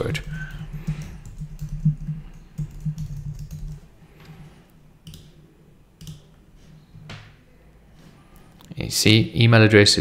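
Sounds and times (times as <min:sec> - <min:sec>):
keyboard typing: 0:00.0 - 0:03.9, 0:05.0 - 0:05.4, 0:06.0 - 0:06.4.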